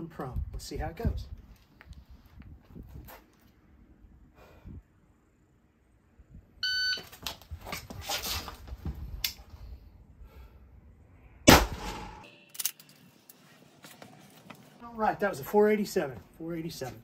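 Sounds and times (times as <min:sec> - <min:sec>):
rifle shot: 0:11.5 - 0:12.3.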